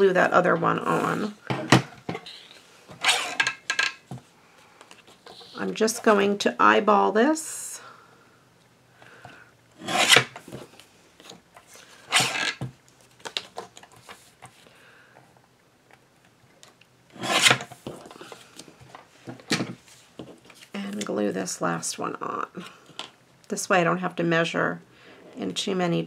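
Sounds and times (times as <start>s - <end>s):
paper trimmer blade cutting: 3.0s - 3.4s.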